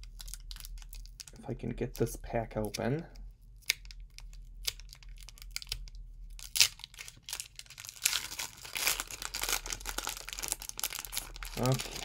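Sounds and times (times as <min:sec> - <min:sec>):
foil wrapper crinkling and tearing: 0:00.0 - 0:01.4, 0:03.6 - 0:12.0.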